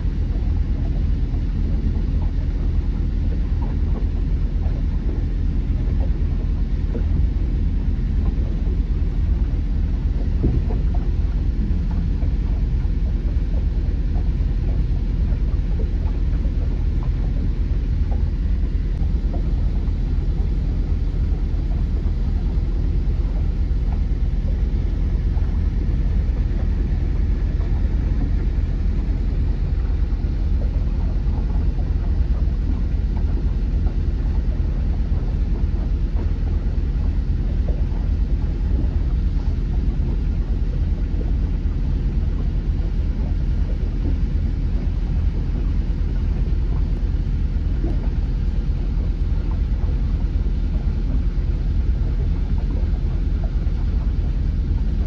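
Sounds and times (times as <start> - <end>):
boat engine rumbling: 0.0 - 55.0.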